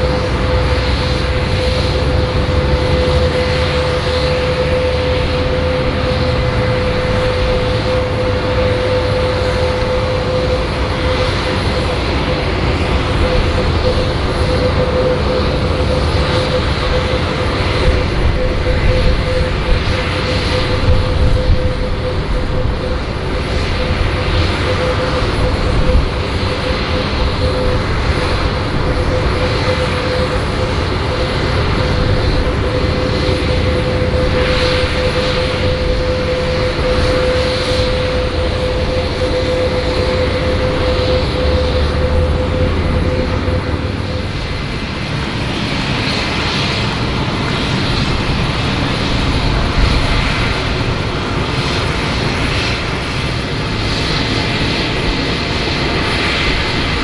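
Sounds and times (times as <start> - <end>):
jet engine rush and whine: 0.0 - 57.0.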